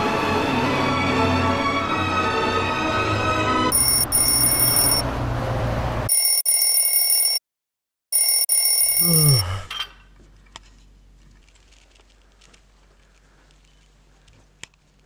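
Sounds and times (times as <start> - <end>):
electronic alarm ringing: 3.7 - 5.1, 6.1 - 7.4, 8.1 - 9.4.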